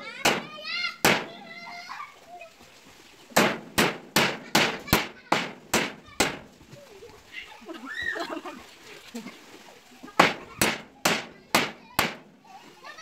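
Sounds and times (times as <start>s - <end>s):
hammer striking nail: 0.2s - 1.3s, 3.4s - 6.4s, 10.2s - 12.2s.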